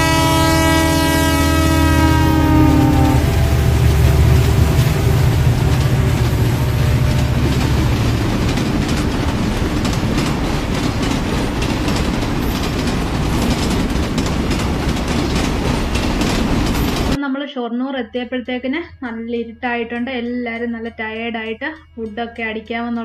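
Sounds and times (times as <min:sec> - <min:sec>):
train low rumble: 0:00.0 - 0:17.2
train wheels rattling on rails: 0:00.0 - 0:17.2.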